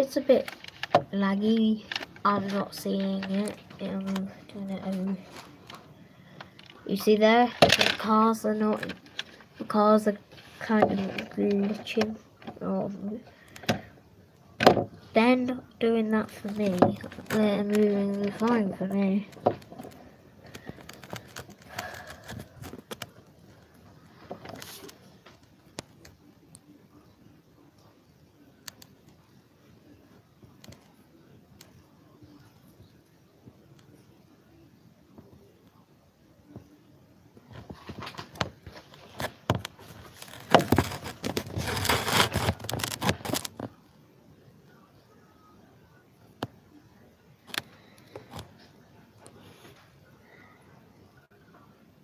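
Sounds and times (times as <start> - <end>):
crackling handling noise: 0.0 - 12.7, 16.1 - 26.8, 37.4 - 43.8, 47.4 - 50.1.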